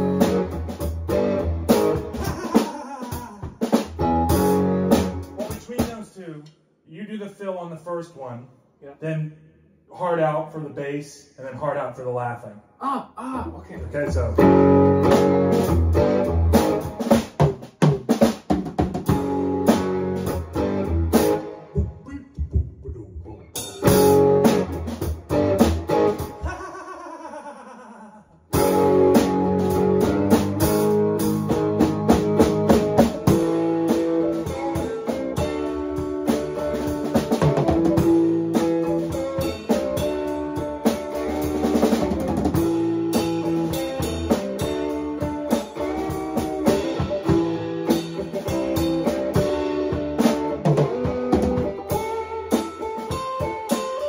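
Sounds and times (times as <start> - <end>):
strummed guitar chords: 0.0 - 6.0, 13.9 - 18.1, 18.9 - 22.0, 23.4 - 26.9, 28.5 - 54.0
drum kit steady beat: 0.0 - 6.4, 13.8 - 26.8, 28.5 - 54.0.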